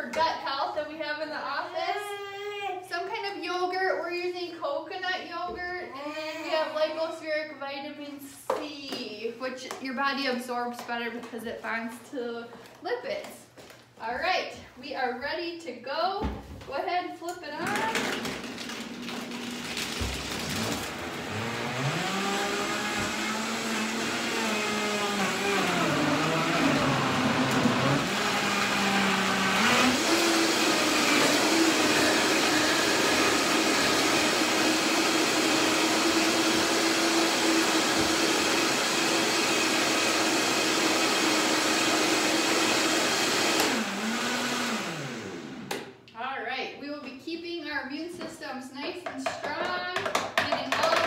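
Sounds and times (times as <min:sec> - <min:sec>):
blender motor running: 0:17.6 - 0:45.9.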